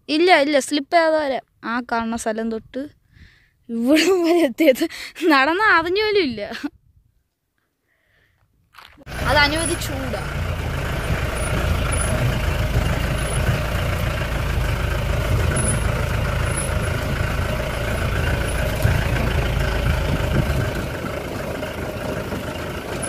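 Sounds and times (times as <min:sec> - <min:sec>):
wind buffeting microphone: 0:14.7 - 0:23.0.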